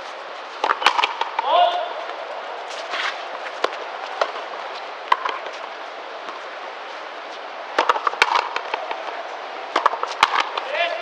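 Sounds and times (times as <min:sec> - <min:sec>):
rubber ball hitting rackets and wall: 0:00.6 - 0:02.2, 0:05.1 - 0:05.5, 0:07.7 - 0:11.0.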